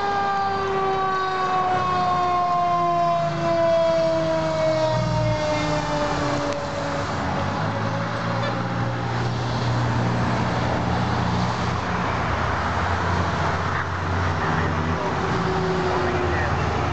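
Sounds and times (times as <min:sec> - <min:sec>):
siren: 0:00.0 - 0:09.6, 0:13.6 - 0:16.9
fire engine driving: 0:00.0 - 0:16.9
road noise: 0:00.0 - 0:16.9.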